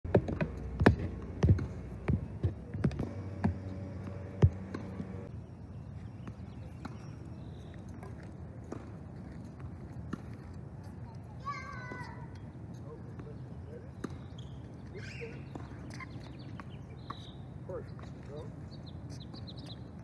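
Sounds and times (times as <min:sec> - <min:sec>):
sharp knocks: 0:00.1 - 0:05.3.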